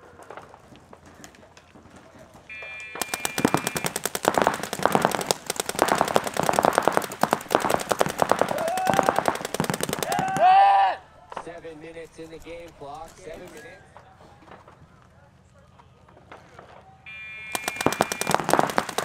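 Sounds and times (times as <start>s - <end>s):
short steady beep: 2.5s - 4.0s, 17.1s - 18.5s
paintball marker rapid fire: 2.5s - 10.6s, 17.4s - 19.0s.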